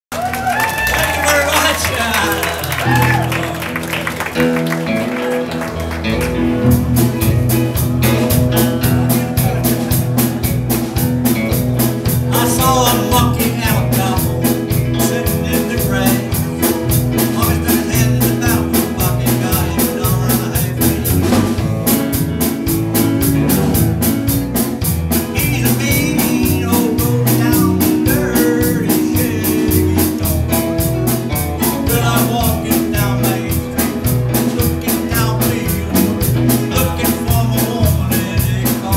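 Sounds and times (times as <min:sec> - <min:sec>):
rockabilly band playing: 0:00.1 - 0:38.9
drums steady beat: 0:06.2 - 0:38.9
man singing: 0:12.1 - 0:21.6, 0:25.1 - 0:38.9.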